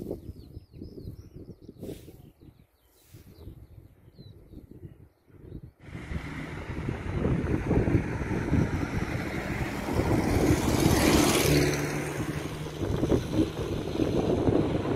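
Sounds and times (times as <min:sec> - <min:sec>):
wind buffeting microphone: 0:00.0 - 0:14.9
car passing by: 0:05.8 - 0:14.9.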